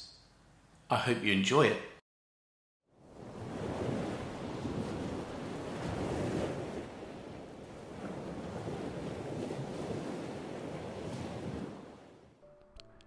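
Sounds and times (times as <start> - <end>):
wind: 2.8 - 12.4
sea waves washing on shore: 3.0 - 12.4.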